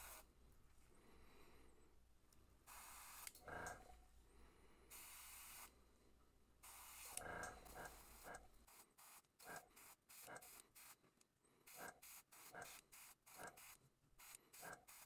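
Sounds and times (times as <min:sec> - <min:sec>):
airbrush spraying hiss: 0:00.0 - 0:00.3, 0:02.7 - 0:03.3, 0:04.9 - 0:05.7, 0:11.7 - 0:15.0.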